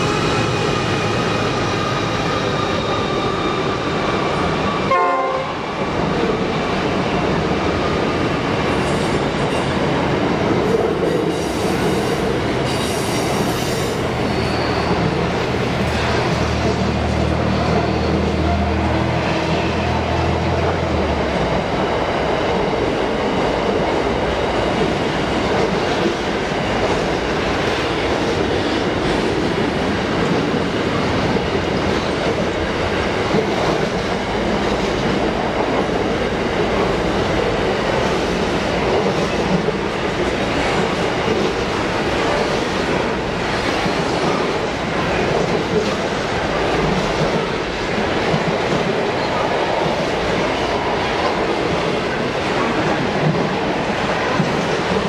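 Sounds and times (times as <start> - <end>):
train wheels rolling on rails: 0.0 - 55.0.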